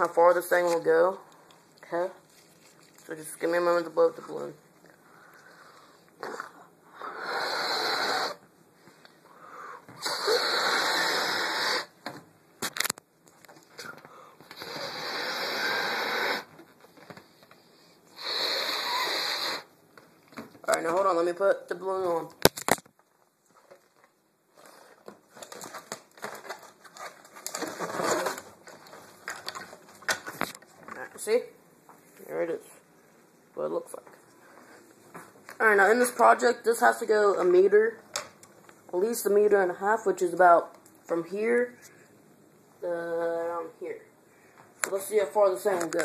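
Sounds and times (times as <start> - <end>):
rustling and crinkling handling noise: 0.0 - 5.4, 22.0 - 39.1
breaths blown into a balloon: 6.2 - 8.4, 9.5 - 12.0, 14.5 - 16.6, 18.1 - 19.7.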